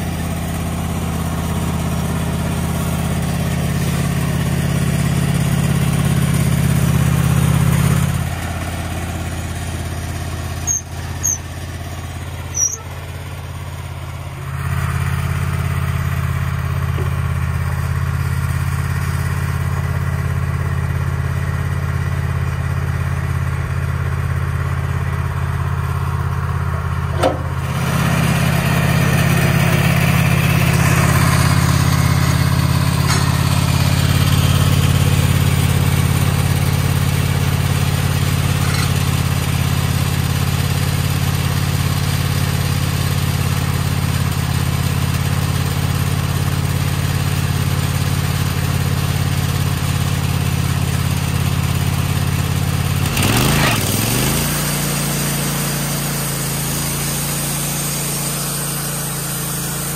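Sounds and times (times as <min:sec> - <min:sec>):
sawmill gasoline engine running: 0:00.0 - 0:59.9
short high squeaks: 0:10.6 - 0:11.7, 0:12.5 - 0:13.1, 0:38.6 - 0:39.0.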